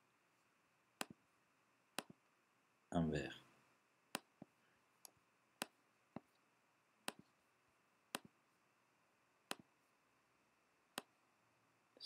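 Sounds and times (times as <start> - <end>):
computer mouse clicks: 2.0 - 2.2.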